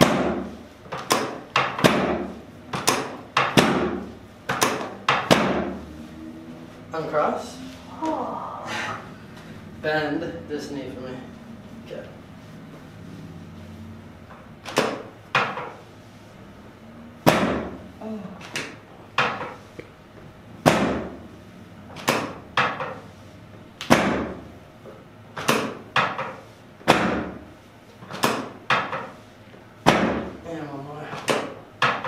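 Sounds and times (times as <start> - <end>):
adjusting table sections clacking: 14.6 - 15.8.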